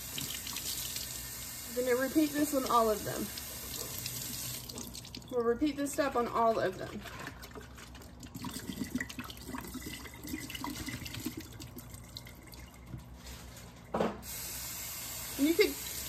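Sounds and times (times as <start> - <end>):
kitchen tap running: 0.0 - 13.1, 14.2 - 16.0
water pouring into steel sink: 8.2 - 12.8.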